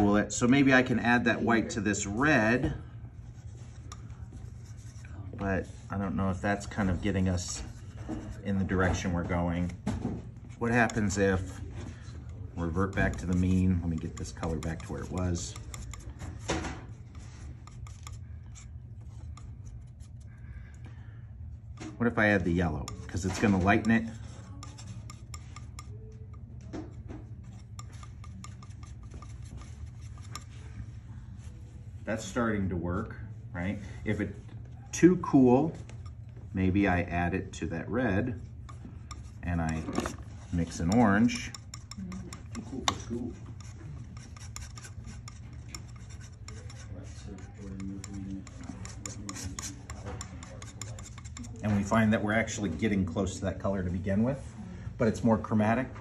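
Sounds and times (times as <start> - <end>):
low steady hum: 0.0 - 56.0
palette knife scraping paint: 3.2 - 9.8, 10.5 - 20.4, 22.2 - 31.5, 38.2 - 53.4.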